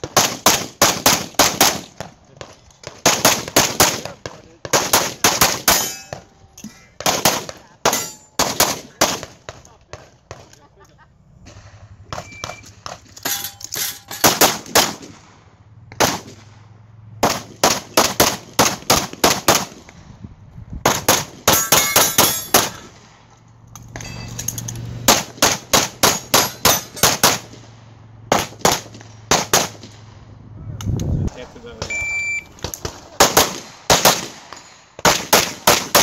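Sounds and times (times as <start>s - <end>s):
pistol shots: 0.0s - 6.3s, 7.0s - 10.5s, 14.2s - 16.6s, 17.2s - 19.9s, 20.8s - 23.1s, 25.1s - 27.7s, 28.3s - 30.0s, 32.6s - 36.0s
metallic clang on steel targets: 5.3s - 7.0s, 7.8s - 8.7s, 11.4s - 14.8s, 21.4s - 22.9s, 23.7s - 27.5s.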